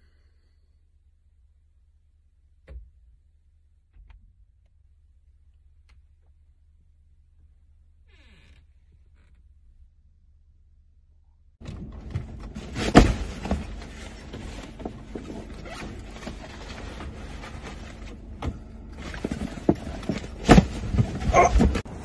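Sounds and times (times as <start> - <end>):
heavy thumps: 11.6 - 21.9
people shuffling inside car: 11.6 - 22.0.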